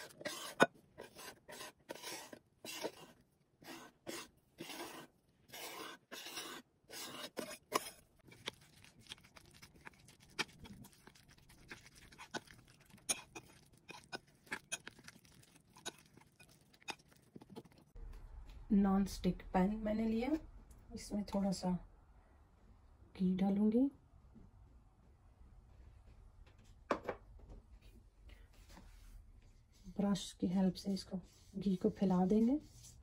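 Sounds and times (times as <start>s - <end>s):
knife scraping on cutting board: 0.0s - 9.2s
spoon stirring wet batter: 0.0s - 18.0s.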